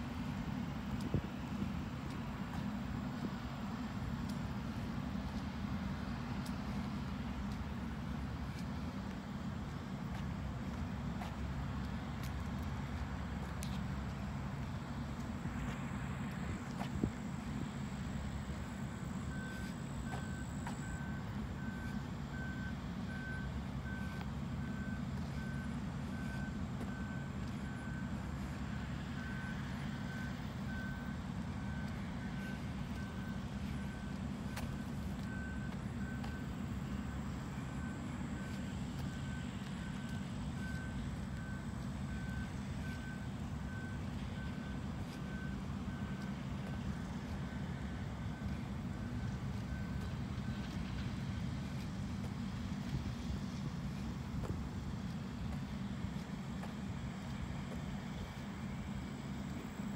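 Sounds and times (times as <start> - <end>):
reversing alarm beeping: 14.2 - 59.9.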